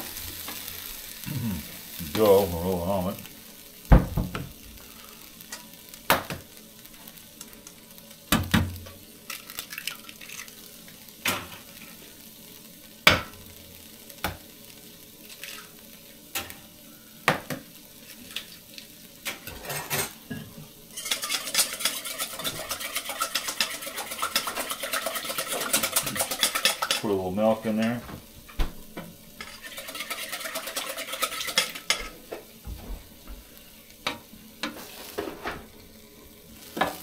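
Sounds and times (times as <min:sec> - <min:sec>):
food sizzling on hot griddle: 0:00.0 - 0:37.0
utensils clinking against dishes: 0:19.3 - 0:27.1.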